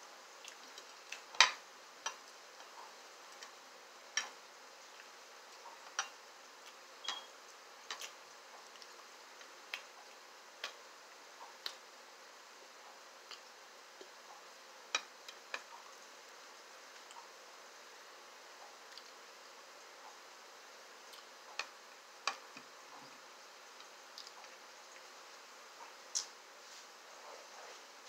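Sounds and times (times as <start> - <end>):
person chewing food: 0.3 - 10.8, 21.0 - 25.1.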